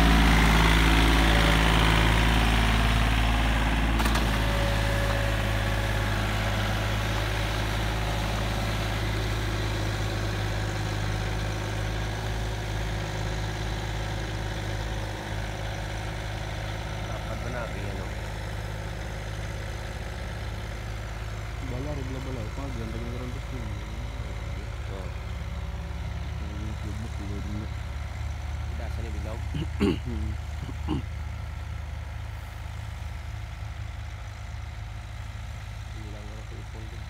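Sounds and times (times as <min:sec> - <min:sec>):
tractor diesel engine running: 0:00.0 - 0:37.0.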